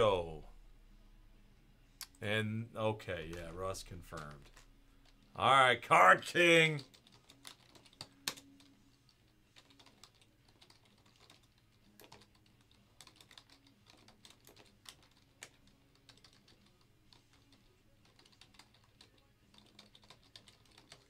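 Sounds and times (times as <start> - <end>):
keyboard typing: 3.2 - 5.4, 6.4 - 21.0.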